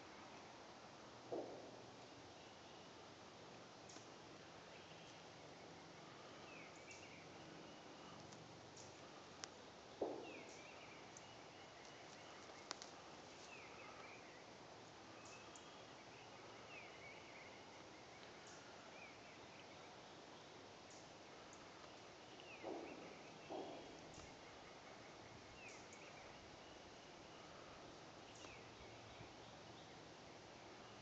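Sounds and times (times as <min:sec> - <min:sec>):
faint clicks: 0:08.0 - 0:09.6, 0:11.8 - 0:14.0
soft rustle: 0:10.4 - 0:16.0.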